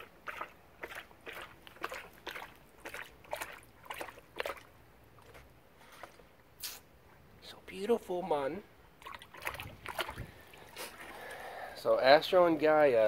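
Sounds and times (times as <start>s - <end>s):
dog lapping water: 0.0s - 5.3s, 9.0s - 11.4s.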